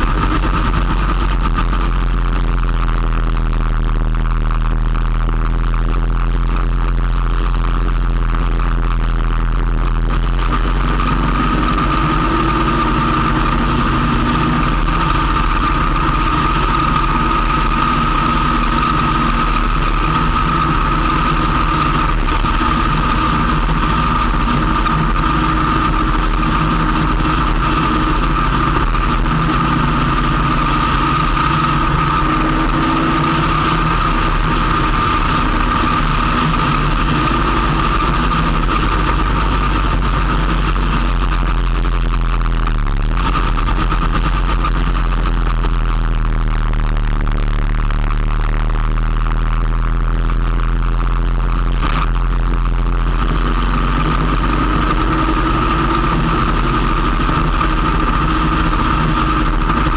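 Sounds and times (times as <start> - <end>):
motorcycle engine running: 0.0 - 59.9
steady high whine: 0.0 - 59.9.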